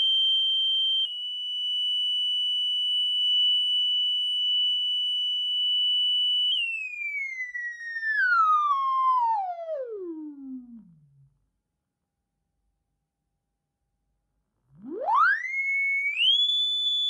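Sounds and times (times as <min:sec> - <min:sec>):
high test tone sweeping down: 0:14.7 - 0:16.4.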